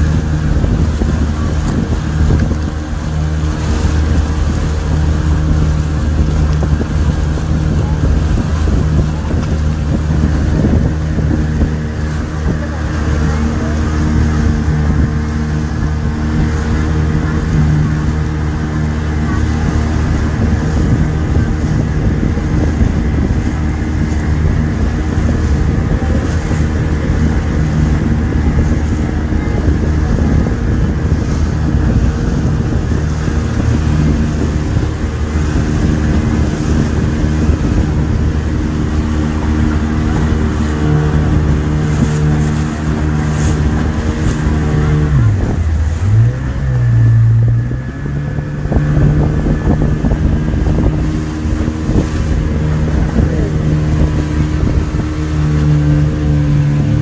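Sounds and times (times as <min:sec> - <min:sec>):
speedboat engine running: 0:00.0 - 0:57.0
water rushing along hull: 0:00.0 - 0:57.0.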